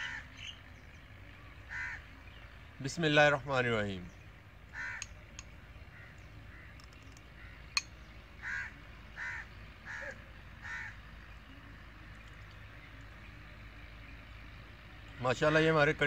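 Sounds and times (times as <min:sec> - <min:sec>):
crow cawing: 0:00.0 - 0:00.3, 0:01.7 - 0:02.1, 0:04.7 - 0:05.2, 0:05.9 - 0:11.1.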